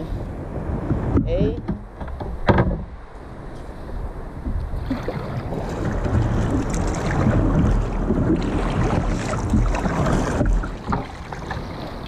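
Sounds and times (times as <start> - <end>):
wind buffeting microphone: 0.0 - 12.0
water sloshing against kayak: 0.5 - 12.0
kayak paddle splashing: 4.4 - 12.0.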